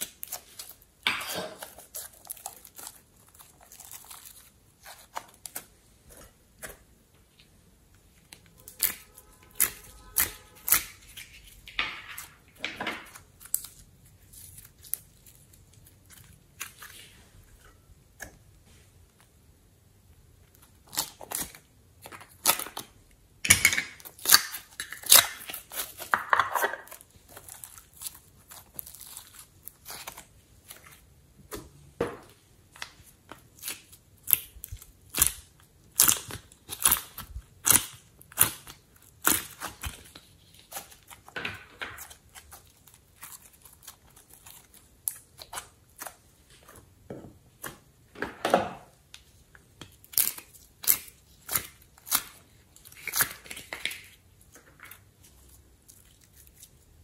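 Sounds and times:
scraping and crinkling: 0:00.0 - 0:17.8, 0:24.0 - 0:34.0, 0:36.2 - 0:46.9.

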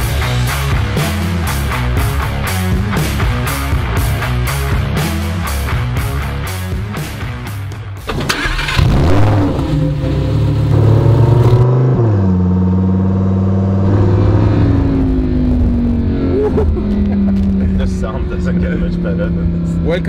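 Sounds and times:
sports car engine revving: 0:08.0 - 0:20.0.

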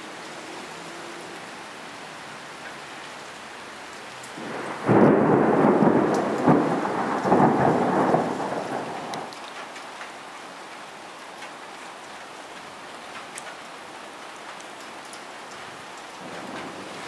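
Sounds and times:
steady rain: 0:00.0 - 0:17.0
thunder crack and rolling peals: 0:04.4 - 0:09.3, 0:16.2 - 0:17.0.

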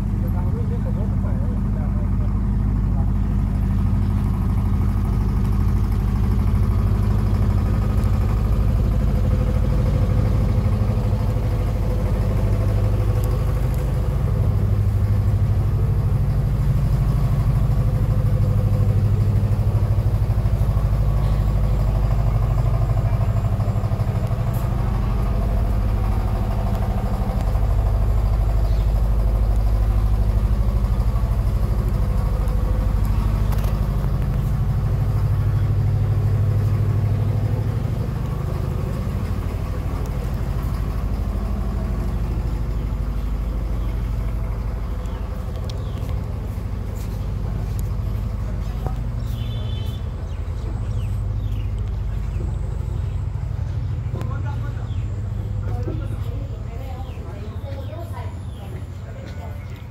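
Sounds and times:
low engine-like drone: 0:00.0 - 0:59.9.

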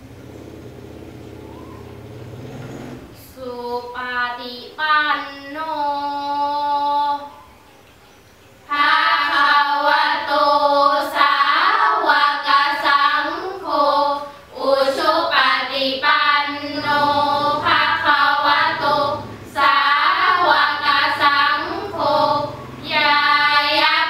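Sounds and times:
girls chanting in unison: 0:08.7 - 0:24.0.

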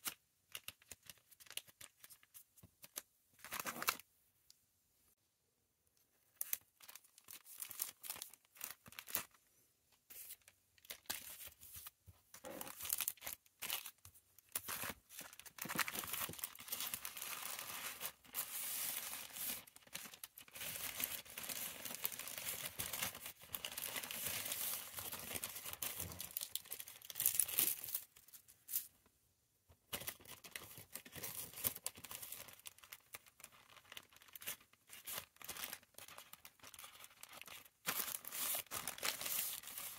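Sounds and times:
plastic packaging crinkling: 0:06.3 - 0:09.4, 0:12.4 - 0:28.9, 0:29.9 - 0:39.9.

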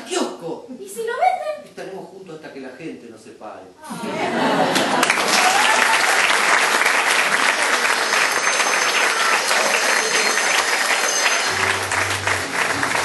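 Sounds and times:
audience applauding: 0:04.6 - 0:13.0.

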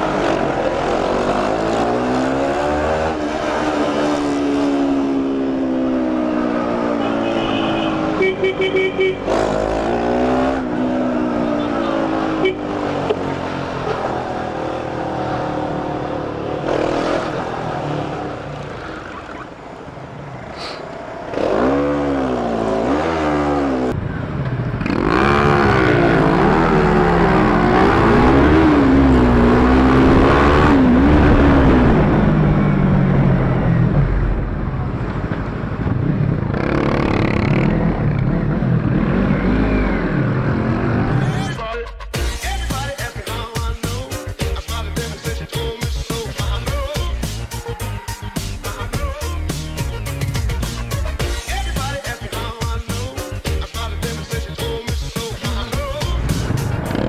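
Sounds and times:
motorcycle engine revving: 0:00.0 - 0:19.5, 0:21.3 - 0:24.0, 0:24.6 - 0:34.6, 0:35.2 - 0:41.6
wind and road rush: 0:00.0 - 0:41.6, 0:54.6 - 0:57.0.

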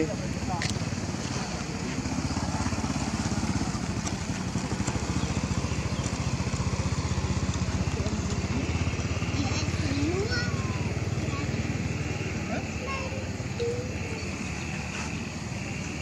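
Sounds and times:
small engine running: 0:00.0 - 0:16.0.

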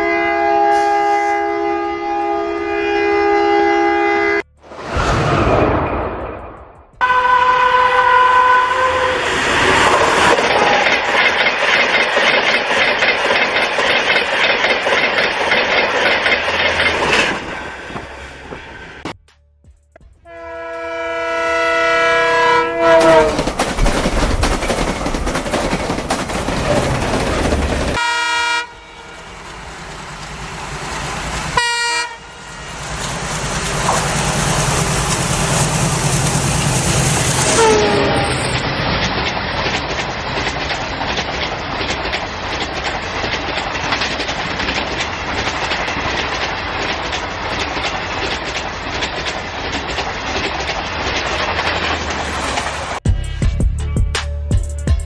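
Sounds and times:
toy train horn: 0:00.0 - 0:04.4, 0:07.0 - 0:09.2, 0:20.3 - 0:23.4, 0:28.0 - 0:29.3, 0:31.6 - 0:32.4, 0:37.4 - 0:38.4
toy trains rattling on track: 0:09.7 - 0:17.5, 0:23.1 - 0:28.0, 0:33.2 - 0:52.9.

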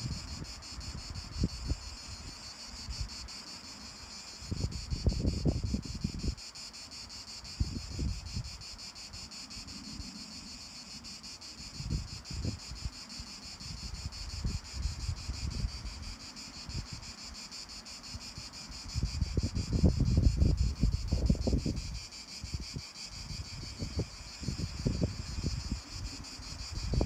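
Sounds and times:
wind buffeting microphone: 0:00.0 - 0:02.3, 0:04.4 - 0:06.4, 0:07.5 - 0:08.6, 0:11.7 - 0:12.9, 0:13.6 - 0:17.1, 0:18.7 - 0:27.0
insects chirping: 0:00.0 - 0:27.0.

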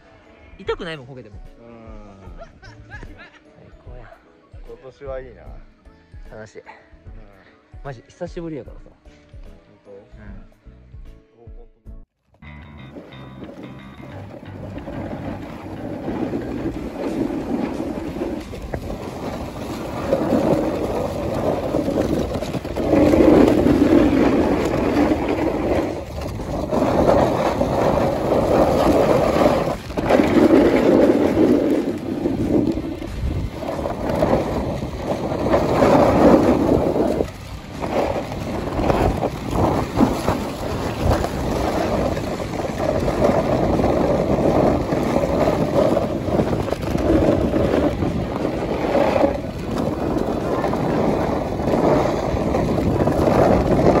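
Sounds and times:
snowboard scraping on snow: 0:12.8 - 0:54.0
wind on microphone: 0:12.8 - 0:54.0.

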